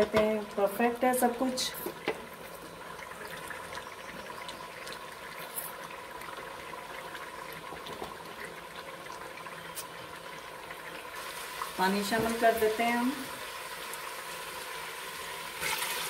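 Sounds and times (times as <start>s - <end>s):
food sizzling in oil: 8.4s - 16.0s.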